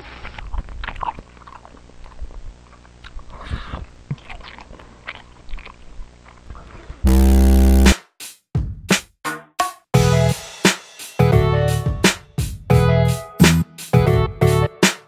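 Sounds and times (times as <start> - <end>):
steady low hum: 7.1 - 7.9
buzzing static burst: 7.1 - 8.0.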